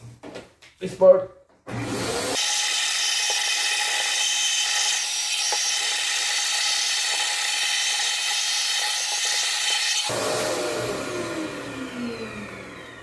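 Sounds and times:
vacuum cleaner whining: 0:01.7 - 0:13.0.

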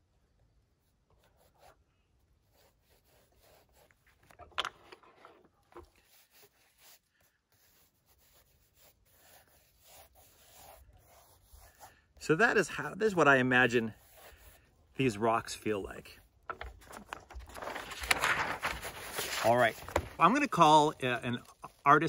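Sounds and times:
pencil scratching on paper: 0:02.4 - 0:04.0, 0:06.0 - 0:12.0, 0:13.8 - 0:14.7.

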